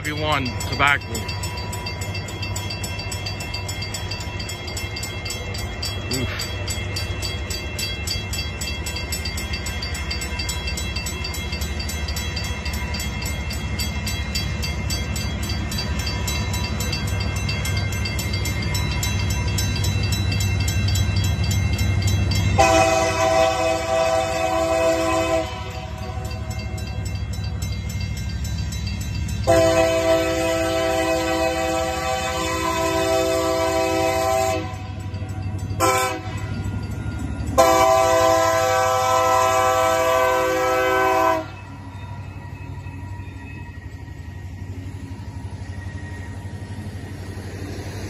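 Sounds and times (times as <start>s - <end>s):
crossing bell ringing: 0.0s - 48.0s
diesel locomotive rumble: 0.0s - 48.0s
locomotive air horn blasts: 22.6s - 26.2s, 29.5s - 34.9s, 35.8s - 36.4s, 37.6s - 41.6s.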